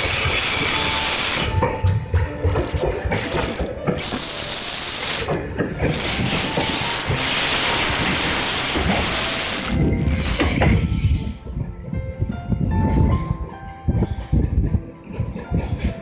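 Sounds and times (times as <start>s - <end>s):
high-pitched wheel squeal: 0.0s - 11.3s
wheels knocking over rail joints: 0.0s - 11.6s
freight wagons rolling past: 0.0s - 13.7s.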